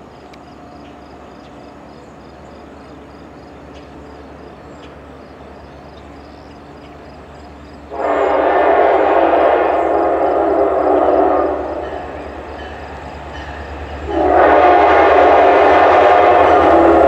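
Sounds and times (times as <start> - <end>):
locomotive air horn blast: 7.9 - 12.4, 14.0 - 17.0.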